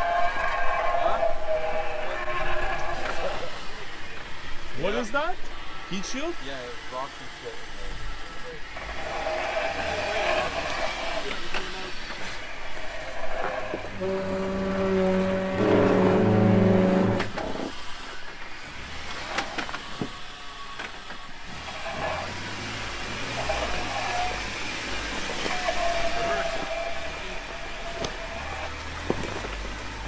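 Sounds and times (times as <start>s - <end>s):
car engine revving under load: 6.8s - 30.0s
rocks clicking under tyres: 28.8s - 30.0s.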